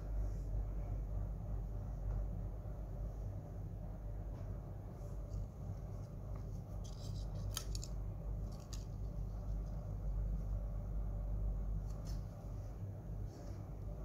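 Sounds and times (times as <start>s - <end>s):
low steady hum: 0.0s - 14.0s
crisp clicks: 6.8s - 9.1s.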